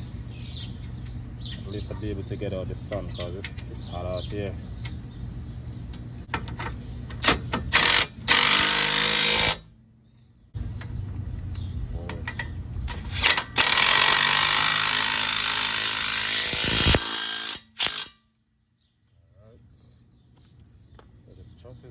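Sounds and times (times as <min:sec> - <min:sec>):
impact wrench hammering: 0:07.2 - 0:09.6, 0:13.1 - 0:18.2.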